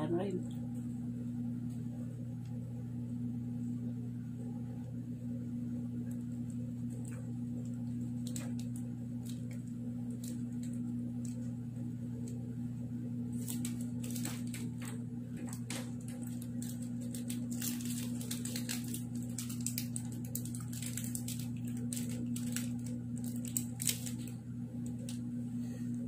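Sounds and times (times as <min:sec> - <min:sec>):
low electrical hum: 0:00.0 - 0:26.0
wrapper crinkling: 0:06.1 - 0:11.6, 0:13.3 - 0:25.3.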